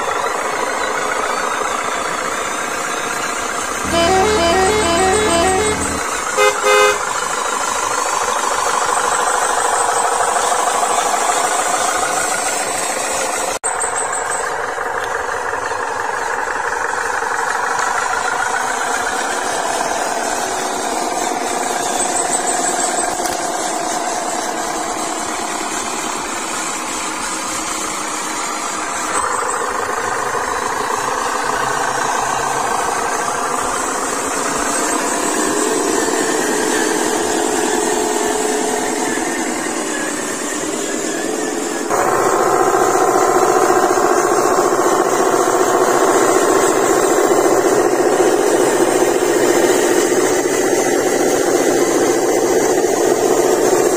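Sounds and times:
model truck engine running: 0.0 - 53.9
short horn toot: 3.8 - 7.0.

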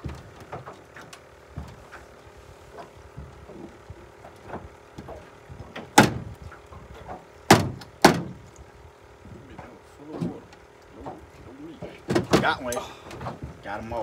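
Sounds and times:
knocks in a metal boat: 5.0 - 6.3, 7.5 - 8.4.

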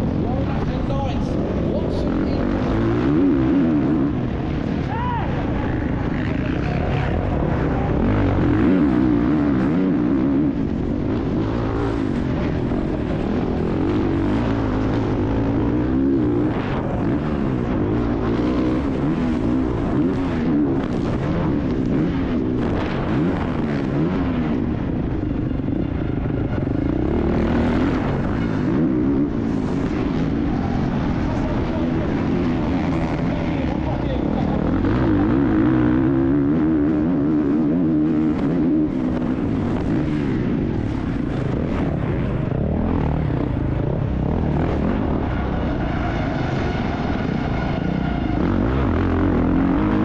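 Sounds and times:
motocross bike engine revving: 0.0 - 50.0.

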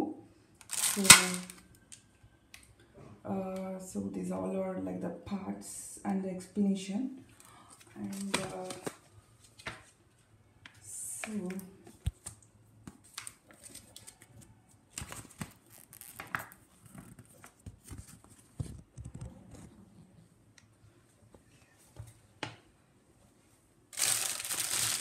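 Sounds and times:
plastic packaging crinkling: 0.6 - 1.6, 7.8 - 9.6, 13.0 - 18.5, 23.9 - 25.0.

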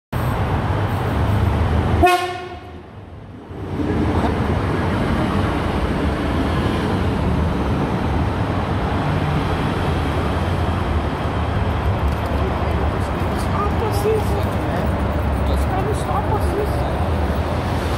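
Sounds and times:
train horn blast: 2.0 - 2.8.

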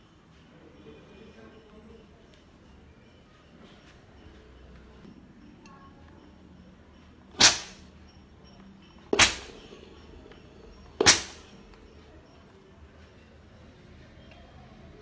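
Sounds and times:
steam iron hissing: 7.4 - 7.9, 9.2 - 9.6, 11.0 - 11.4.

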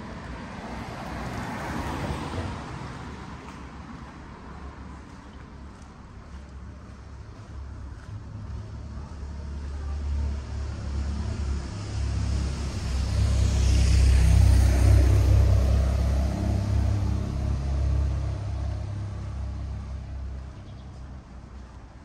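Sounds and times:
vehicle passing by: 0.0 - 3.6, 8.0 - 21.6.

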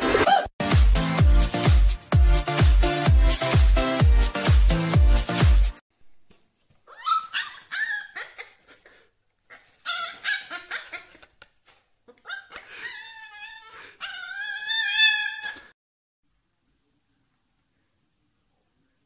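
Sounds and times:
puppy whining and yipping: 6.9 - 8.8, 9.5 - 11.0, 12.2 - 15.7.

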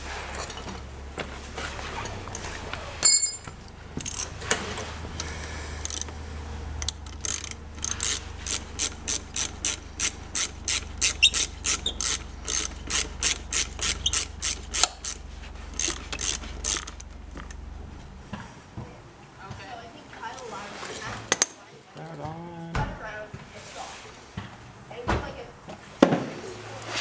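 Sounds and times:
ratchet wrench clicking: 3.0 - 4.3, 5.8 - 6.1, 6.8 - 17.6.

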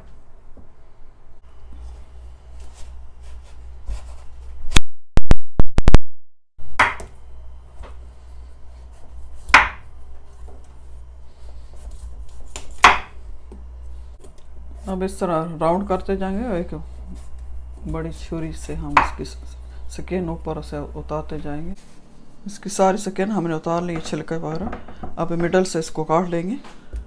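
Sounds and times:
low steady hum: 0.0 - 4.8, 6.6 - 27.0
knife striking cutting board: 6.8 - 7.1, 9.5 - 9.9, 12.5 - 13.2.

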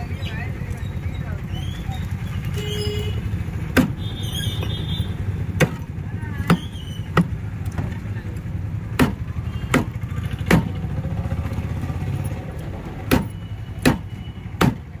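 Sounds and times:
low rumble of traffic: 0.0 - 15.0
knife chopping fish on wood: 5.6 - 5.8, 6.4 - 7.4, 9.0 - 10.8, 13.1 - 14.9.

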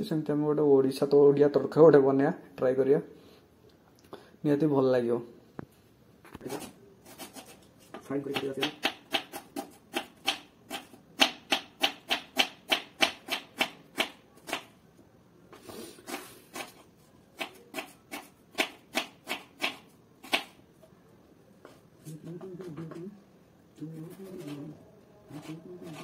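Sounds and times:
knife chopping on wooden board: 7.2 - 14.7, 17.4 - 20.6.

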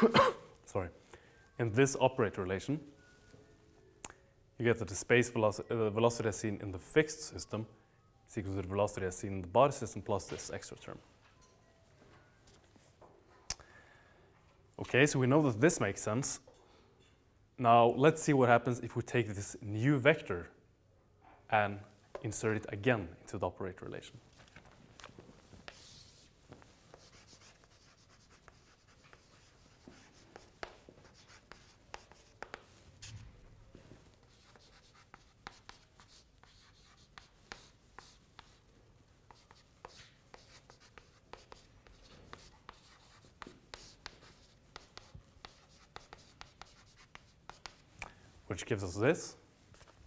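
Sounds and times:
chalk tapping and scraping on blackboard: 25.5 - 33.2, 34.0 - 48.0.

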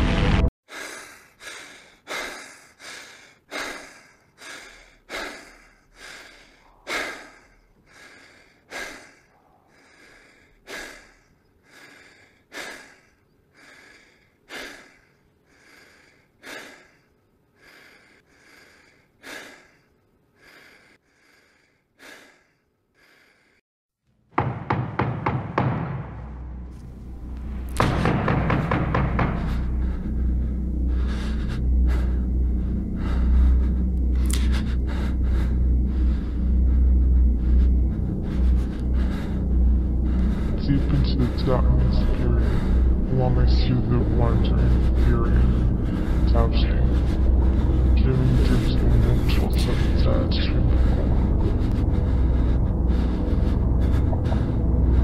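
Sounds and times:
loud music: 0.0 - 0.5
person breathing heavily: 0.7 - 23.6, 26.0 - 55.0.

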